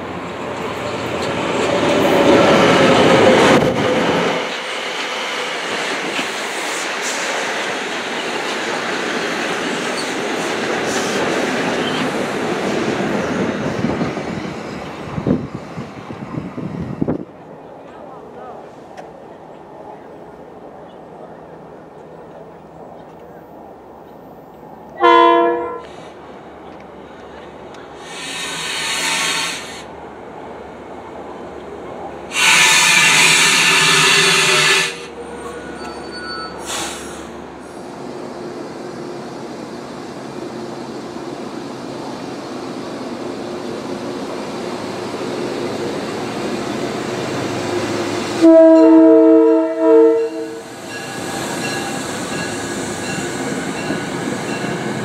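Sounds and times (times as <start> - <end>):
train wheels clacking over rails: 0.0 - 15.9, 25.9 - 29.9, 50.5 - 55.0
train rumble: 0.0 - 55.0
loud bursts of hiss: 28.0 - 29.9, 32.3 - 35.1, 36.6 - 38.0.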